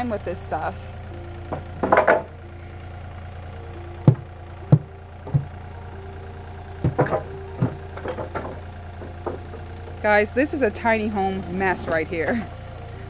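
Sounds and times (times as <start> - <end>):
excavator engine idling: 0.0 - 13.0
sharp knocks and clatters: 1.5 - 2.4, 4.0 - 5.5, 6.8 - 10.1.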